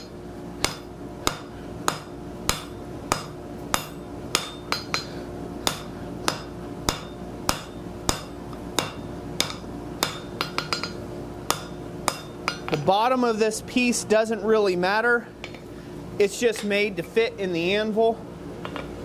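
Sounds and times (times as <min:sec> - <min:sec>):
hammer striking steel on anvil: 0:00.0 - 0:12.9.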